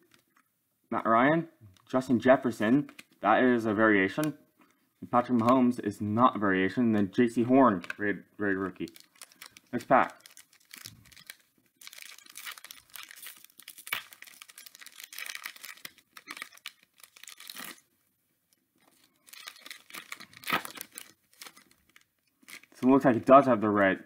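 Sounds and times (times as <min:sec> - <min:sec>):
foil wrapper tearing and crinkling: 0:08.8 - 0:17.9, 0:18.9 - 0:22.8.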